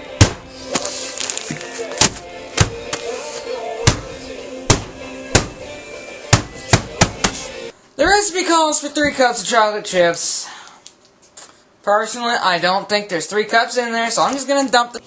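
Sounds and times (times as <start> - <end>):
music playing: 0.0 - 7.8
bag of sugar being whacked: 0.2 - 3.1, 3.9 - 5.7.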